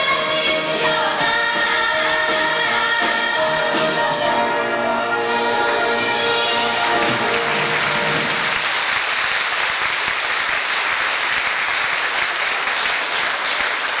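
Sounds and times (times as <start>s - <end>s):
held music notes: 0.0s - 8.6s
audience applauding: 5.3s - 14.0s.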